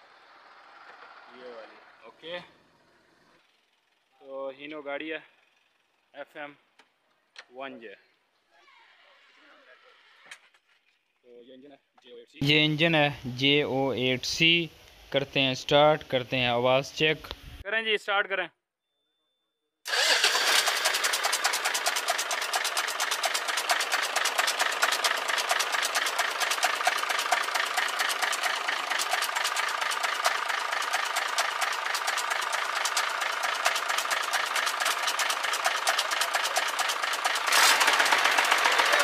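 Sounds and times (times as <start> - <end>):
diesel engine knocking: 20.7 - 39.0.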